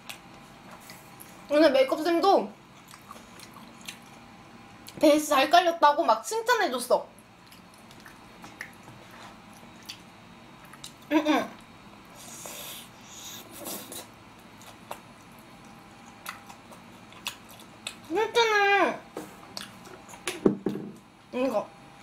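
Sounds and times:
biting and chewing food: 0:07.3 - 0:11.1, 0:13.6 - 0:18.1.

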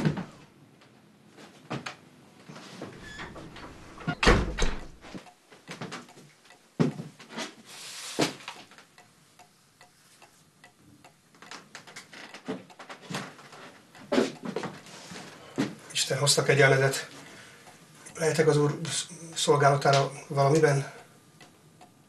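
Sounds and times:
door knocks and thuds: 0:03.4 - 0:05.0.

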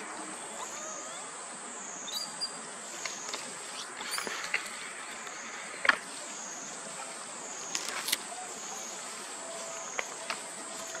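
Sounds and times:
high-pitched insect drone: 0:00.0 - 0:06.8
footsteps rustling dry leaves: 0:02.7 - 0:11.0.

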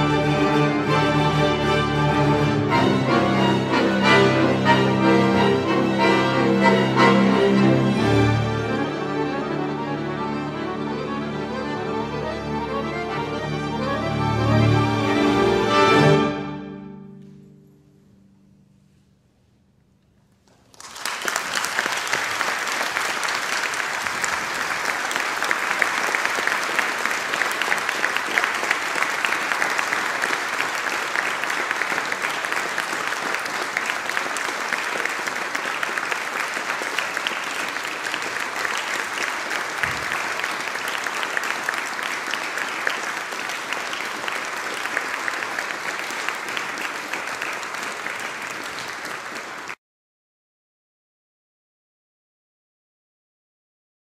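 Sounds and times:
audience applauding: 0:20.5 - 0:49.8.

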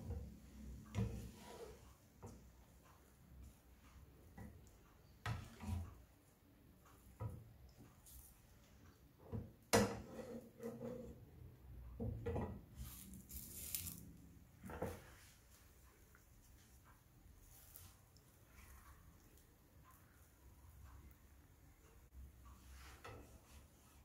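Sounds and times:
spatula tapping and scraping pan: 0:00.0 - 0:06.2, 0:09.1 - 0:11.2, 0:22.7 - 0:23.8.

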